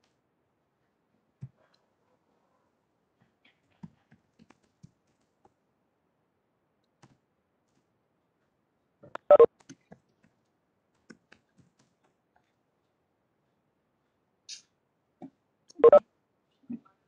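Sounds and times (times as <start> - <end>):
faint clicks and taps: 3.2 - 5.6, 6.8 - 13.0.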